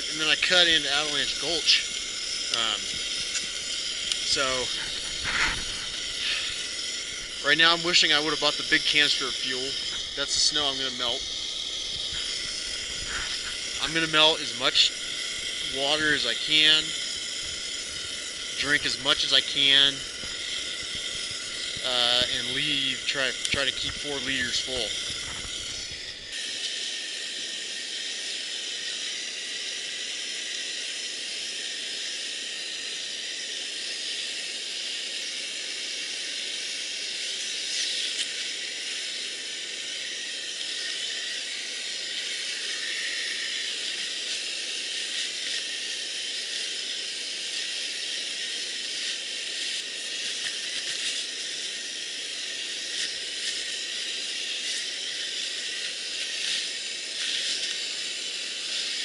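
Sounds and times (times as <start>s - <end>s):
stove burner hissing: 0.0s - 59.0s.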